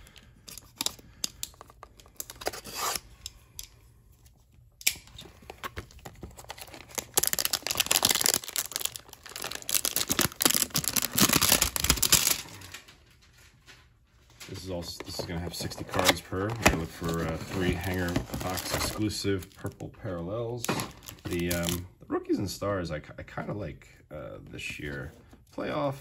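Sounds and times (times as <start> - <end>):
packaging tearing and crinkling: 4.8 - 13.0, 14.4 - 19.8, 20.6 - 21.8.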